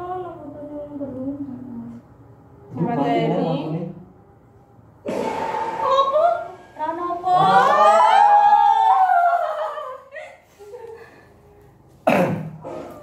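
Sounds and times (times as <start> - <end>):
sudden loud burst: 5.0 - 7.9.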